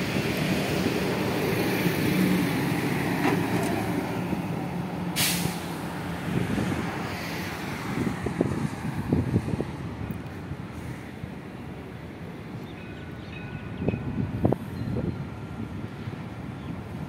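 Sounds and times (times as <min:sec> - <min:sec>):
tram rumbling along track: 0:00.0 - 0:17.0
short hiss: 0:05.2 - 0:05.8.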